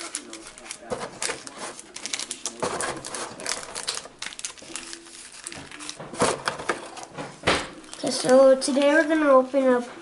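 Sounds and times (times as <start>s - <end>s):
plastic packaging crinkling: 0.0s - 9.2s.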